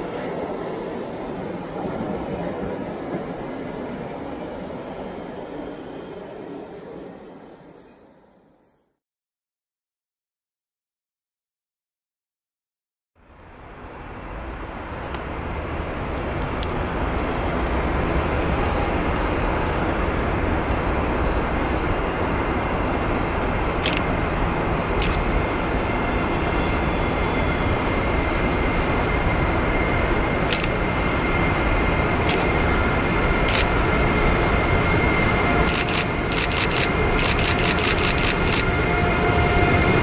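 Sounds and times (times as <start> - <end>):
electric train rumble: 0.0 - 8.6, 13.2 - 40.0
sharp clicks: 23.8 - 24.1, 25.0 - 25.2, 30.5 - 30.8, 32.3 - 32.5, 33.5 - 33.7, 35.7 - 38.7.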